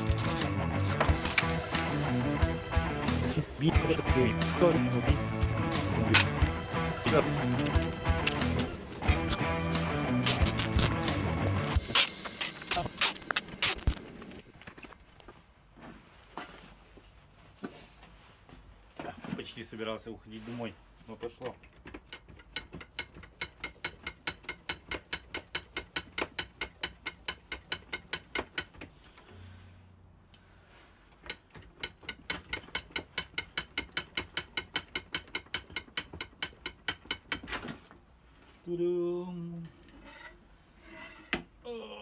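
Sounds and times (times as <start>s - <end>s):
metal tools clicking and knocking: 7.5s - 9.4s, 21.5s - 28.8s, 31.2s - 37.5s
ratchet clicking: 10.2s - 11.0s.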